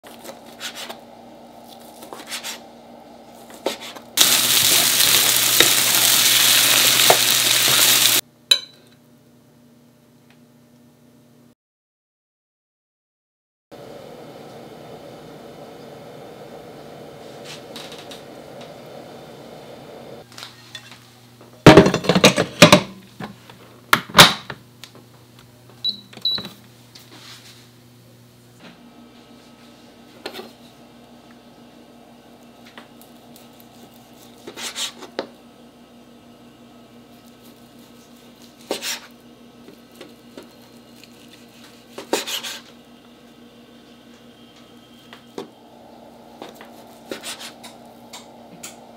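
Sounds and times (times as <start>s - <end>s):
rice sizzling in hot pan: 4.2s - 8.2s, 45.8s - 48.9s
short beeps from rice cooker: 25.8s - 26.4s
spatula scraping pan: 38.6s - 39.1s, 40.4s - 42.7s, 46.4s - 47.8s.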